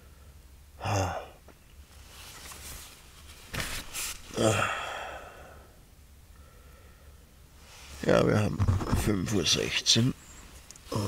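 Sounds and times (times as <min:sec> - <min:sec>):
man making short vocal sounds: 0:00.8 - 0:01.4, 0:04.3 - 0:05.3
sleeping bag and tent fabric rustling: 0:02.0 - 0:04.4.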